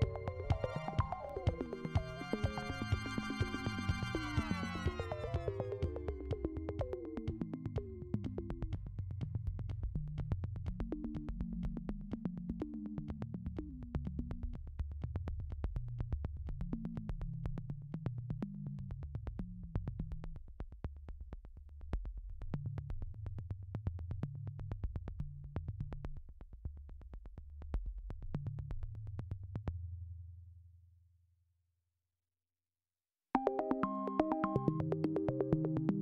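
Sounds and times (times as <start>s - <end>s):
synthesizer music with ticking beat: 0.0s - 14.5s, 33.4s - 36.0s.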